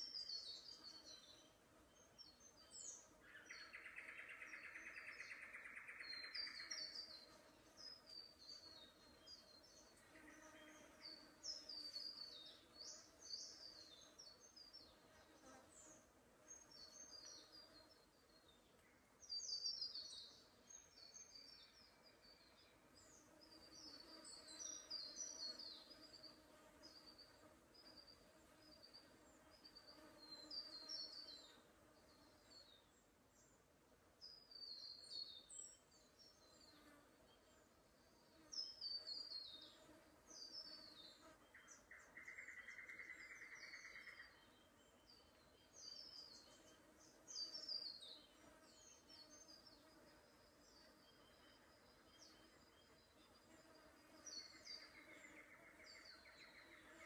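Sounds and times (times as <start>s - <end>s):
small birds chirping: 0.0s - 57.0s
insect buzzing: 19.4s - 32.7s, 36.4s - 57.0s.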